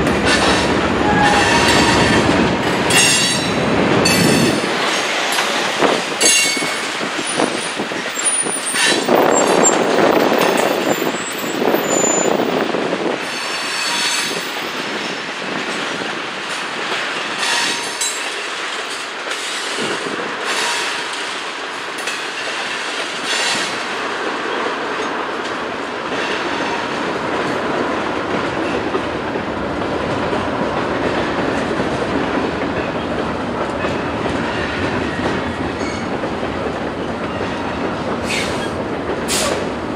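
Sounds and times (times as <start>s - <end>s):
freight train wheels clattering: 0.0s - 39.9s
high wheel squeals: 6.3s - 12.4s.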